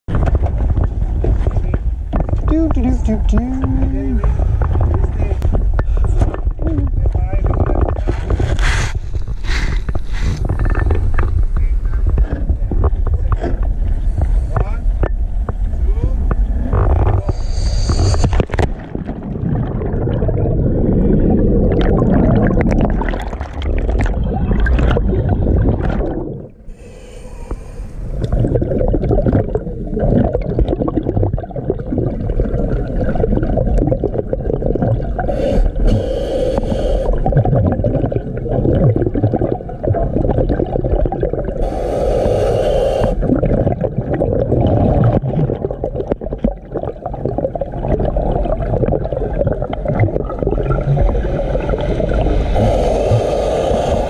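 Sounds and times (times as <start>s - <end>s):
bubbling exhalations underwater: 16.4s - 54.0s
hiss of inhaled air: 17.3s - 18.4s, 26.7s - 28.1s, 35.3s - 37.2s, 41.6s - 43.2s, 52.4s - 54.0s.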